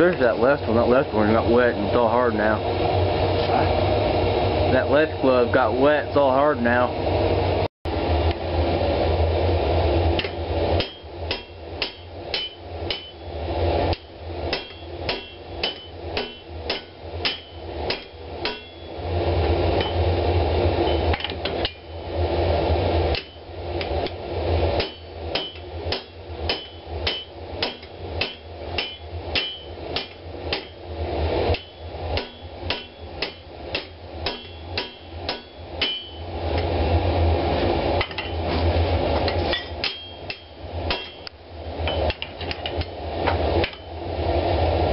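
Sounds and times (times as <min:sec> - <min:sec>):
hammer striking steel on anvil: 0:10.2 - 0:13.3, 0:13.9 - 0:19.0, 0:20.8 - 0:22.0, 0:23.1 - 0:24.2, 0:24.8 - 0:30.8, 0:31.4 - 0:36.7, 0:39.2 - 0:42.9, 0:43.6 - 0:43.9.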